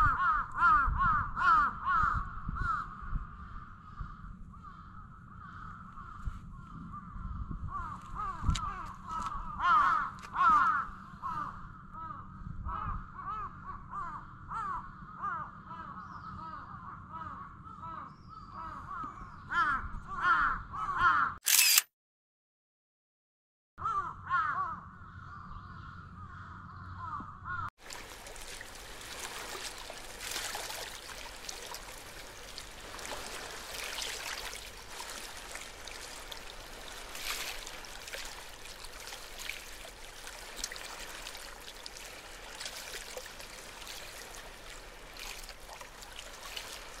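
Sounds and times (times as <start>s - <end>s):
crow cawing: 0.0s - 6.3s, 7.7s - 21.4s, 23.8s - 25.4s, 26.2s - 27.7s
outdoor background noise: 1.2s - 20.1s, 24.0s - 47.0s.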